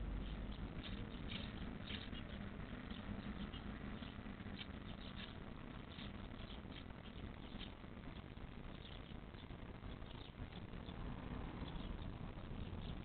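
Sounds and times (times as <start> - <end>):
nestlings cheeping: 0.0 - 13.0
steady low hum: 0.0 - 13.0.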